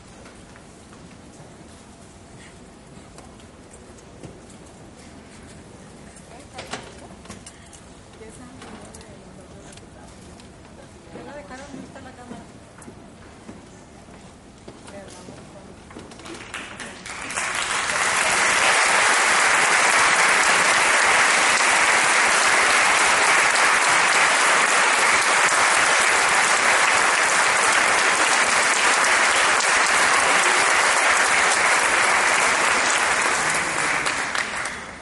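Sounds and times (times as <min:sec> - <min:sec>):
audience applauding: 0:16.2 - 0:35.0.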